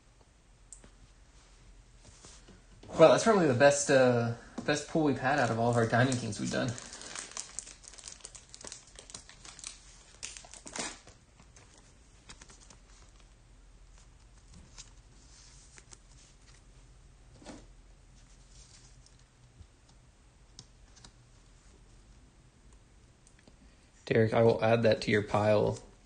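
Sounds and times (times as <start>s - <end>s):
plastic sleeve crinkling: 5.2s - 16.7s.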